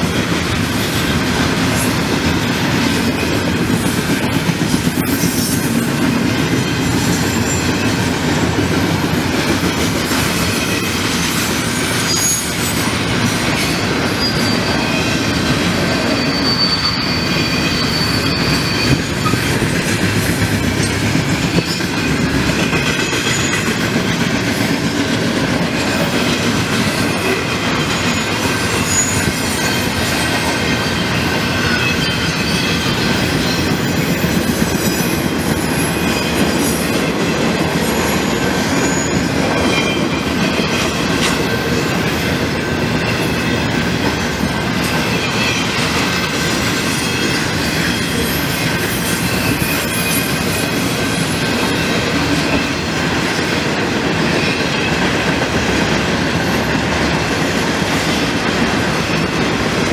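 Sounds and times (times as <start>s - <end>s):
train wheels rumbling on rail: 0.0s - 59.9s
high wheel squeal: 4.8s - 8.5s, 10.1s - 23.8s, 25.8s - 37.0s, 37.8s - 43.9s, 44.8s - 53.5s.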